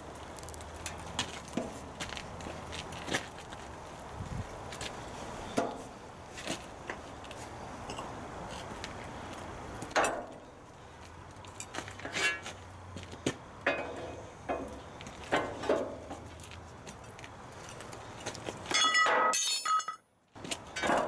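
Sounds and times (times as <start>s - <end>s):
metal shear clanks and clinks: 18.7s - 20.0s.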